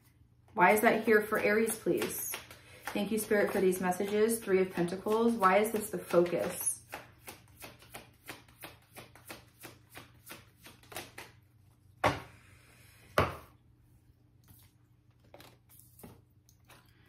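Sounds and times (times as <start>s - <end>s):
cards being shuffled: 5.0s - 11.4s.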